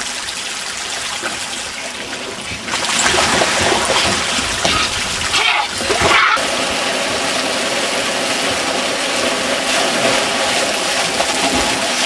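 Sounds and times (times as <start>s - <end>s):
water rushing down a slide: 0.0s - 12.0s
person sliding through water: 2.6s - 12.0s.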